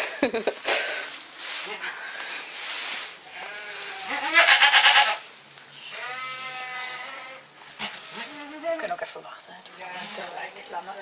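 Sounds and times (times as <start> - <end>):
goat bleating: 3.3 - 5.3, 5.9 - 8.9.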